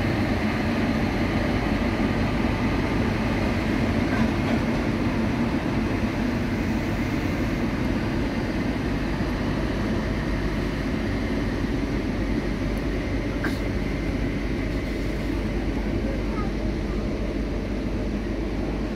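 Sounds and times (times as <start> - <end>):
train wheels on track: 0.0 - 18.9.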